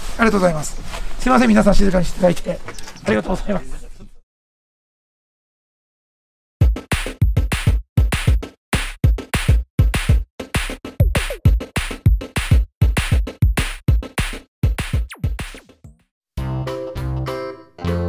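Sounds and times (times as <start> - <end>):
fast punchy drum beat music: 6.6 - 16.0.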